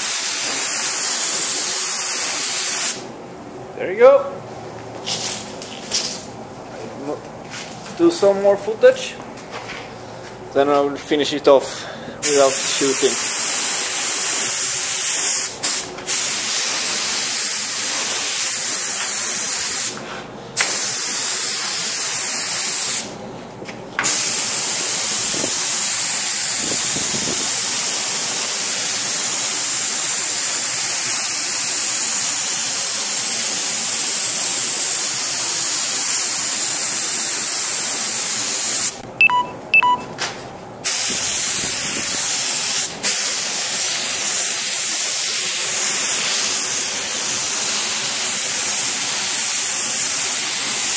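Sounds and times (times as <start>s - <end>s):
spray gun hissing: 0.0s - 3.1s, 12.2s - 20.0s, 20.6s - 23.1s, 24.0s - 39.0s, 40.8s - 50.9s.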